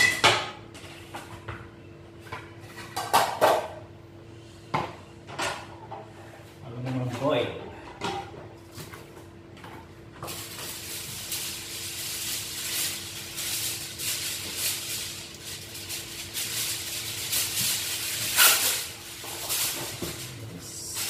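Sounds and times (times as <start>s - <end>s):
kitchen wrap rustling and crackling: 8.5s - 21.0s.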